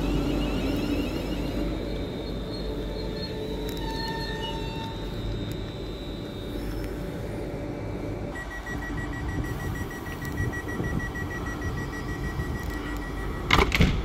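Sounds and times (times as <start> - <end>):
rapid high electronic beeping: 8.3 - 13.5.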